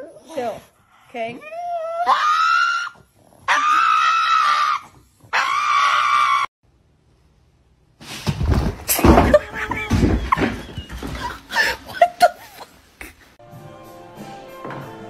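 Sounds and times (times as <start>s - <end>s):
dog wailing cries: 1.4s - 6.5s, 9.3s - 10.6s
thumps and scuffling: 8.0s - 11.9s.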